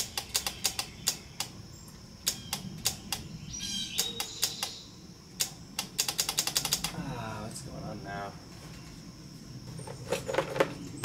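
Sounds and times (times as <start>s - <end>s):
starter circuit clicking: 0.0s - 1.6s, 2.2s - 3.3s, 3.9s - 4.8s, 5.4s - 7.0s.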